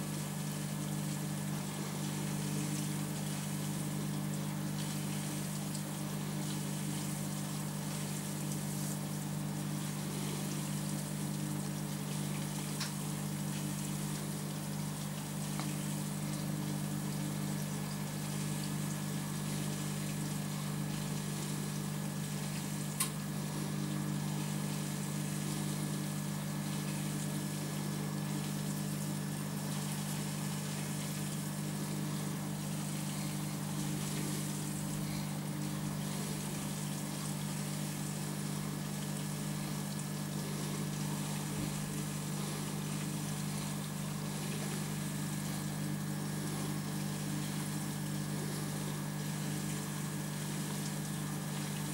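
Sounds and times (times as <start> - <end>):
aquarium pump humming: 0.0 - 51.9
faint watery hiss: 29.8 - 45.8.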